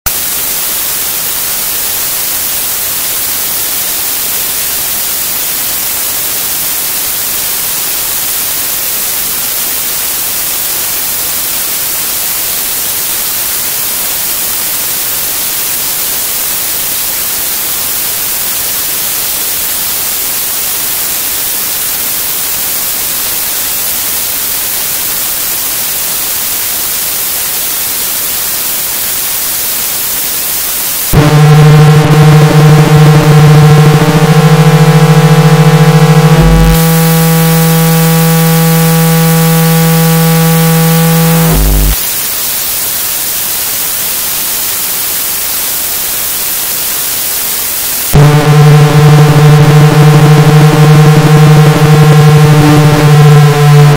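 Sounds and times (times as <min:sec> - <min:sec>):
loud static hiss: 0:00.1 - 0:53.9.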